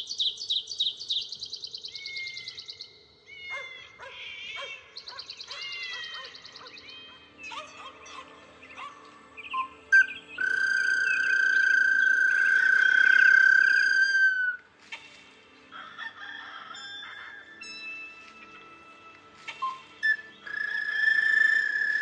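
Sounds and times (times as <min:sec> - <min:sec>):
ocarina playing: 0:09.9 - 0:14.6, 0:20.0 - 0:22.0.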